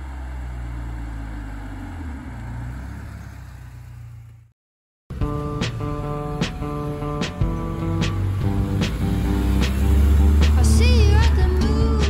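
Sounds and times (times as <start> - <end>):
car engine driving past: 0.0 - 4.5, 7.4 - 12.0
guitar music: 5.1 - 12.0.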